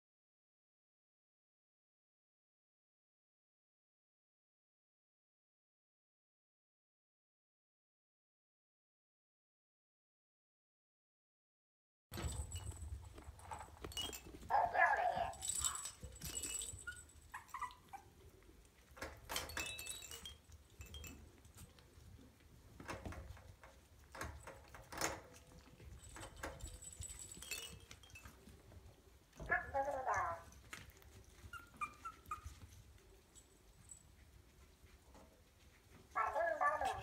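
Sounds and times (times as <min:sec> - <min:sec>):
small bells tinkling in toy balls: 0:12.2 - 0:17.7, 0:19.2 - 0:21.7, 0:25.6 - 0:28.7
puppy whimper: 0:14.6 - 0:18.3, 0:29.4 - 0:32.9, 0:36.1 - 0:37.0.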